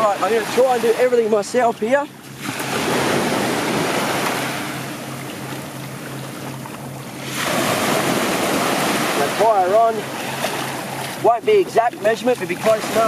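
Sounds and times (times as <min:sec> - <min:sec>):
small waves washing on sand: 0:00.0 - 0:01.4, 0:02.4 - 0:05.0, 0:07.2 - 0:13.0
steady low hum: 0:00.0 - 0:13.0.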